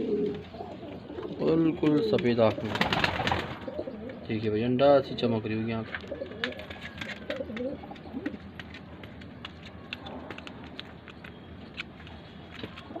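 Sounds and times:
pigeon cooing: 0.0 - 2.2, 3.5 - 4.3.

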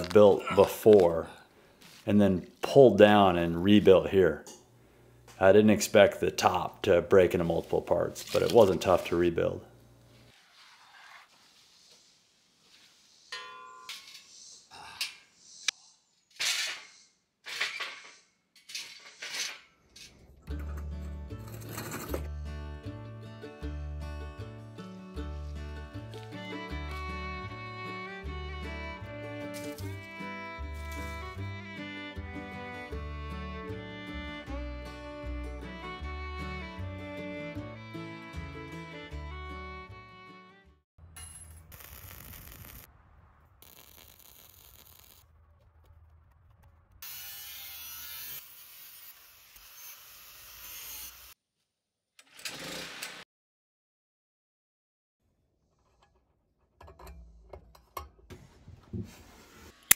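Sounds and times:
welding arc crackling and hissing: 41.7 - 42.9, 43.5 - 46.0.

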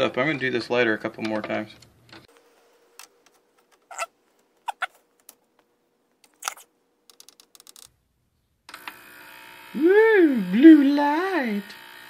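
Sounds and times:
ultrasonic cleaner buzzing: 8.7 - 12.0.

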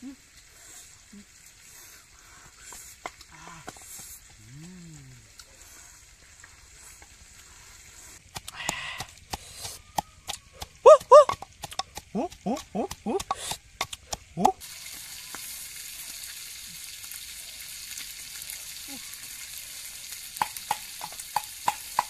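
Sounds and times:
pestle pounding in wooden mortar: 8.2 - 14.6, 20.4 - 22.0
food sizzling in a pan: 10.6 - 22.0.

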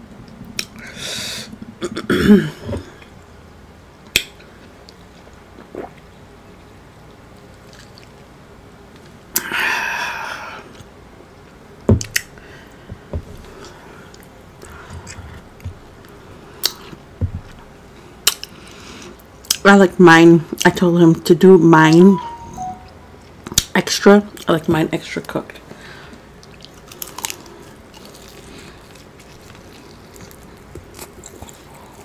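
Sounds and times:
chewing food mouth sounds: 7.4 - 8.3, 13.5 - 17.6, 26.4 - 32.0.

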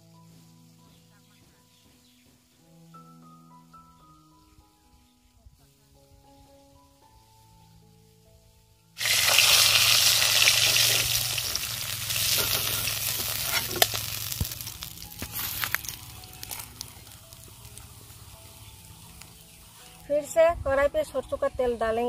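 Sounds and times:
fish sizzling in hot oil: 9.0 - 20.1.

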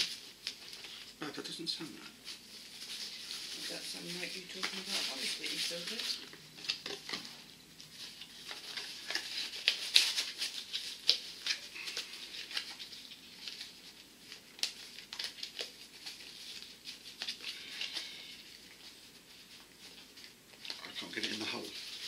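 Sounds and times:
packaging crinkling: 2.2 - 22.0.

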